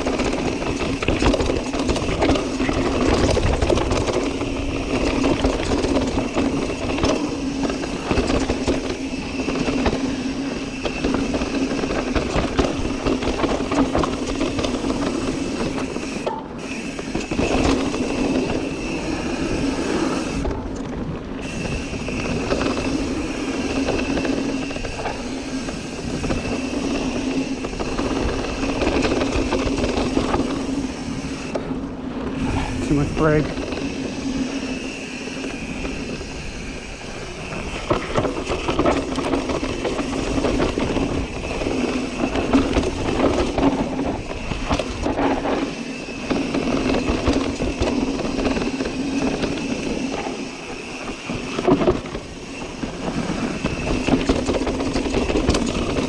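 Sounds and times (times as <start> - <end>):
bike rattling: 0.0 - 56.0
bike tires rolling over dirt: 0.0 - 56.0
steady buzzing tone: 21.4 - 56.0.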